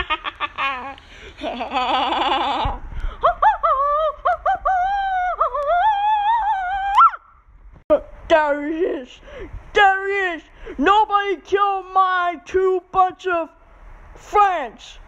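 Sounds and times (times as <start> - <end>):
high wordless singing voice: 2.6 - 7.2, 7.9 - 13.6.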